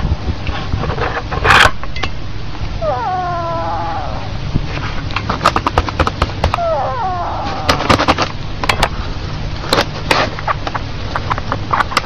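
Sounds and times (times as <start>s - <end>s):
cat call falling in pitch: 2.8s - 4.3s, 6.5s - 8.2s
sharp clicks and knocks: 5.1s - 6.6s, 9.7s - 12.0s
camera handling rumble: 7.4s - 9.0s, 9.6s - 12.0s.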